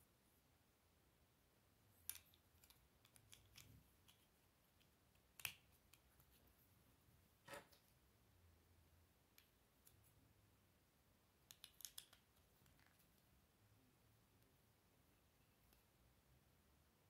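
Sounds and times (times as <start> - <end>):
plastic bricks clicking together: 2.0 - 4.2, 11.5 - 13.0.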